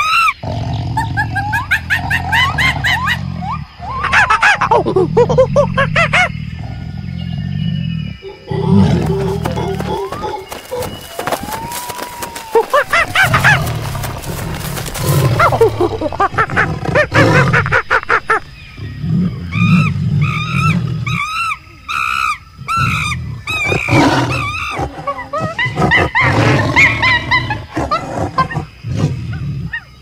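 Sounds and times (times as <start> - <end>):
tiger growling and roaring: 0.4 - 3.8, 6.0 - 10.9, 12.8 - 18.0, 18.8 - 21.4, 22.6 - 29.9.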